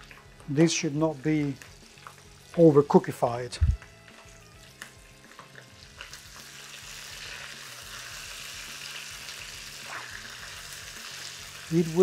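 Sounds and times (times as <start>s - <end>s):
sausages sizzling in oil: 0.0s - 12.0s.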